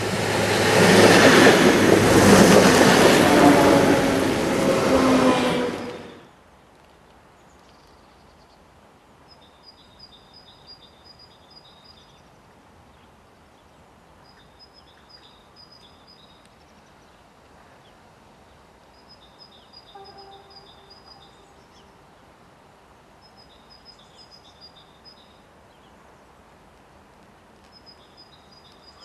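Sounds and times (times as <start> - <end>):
passenger train rushing past: 0.0 - 6.3, 20.0 - 22.0
bird chirping: 19.1 - 22.0.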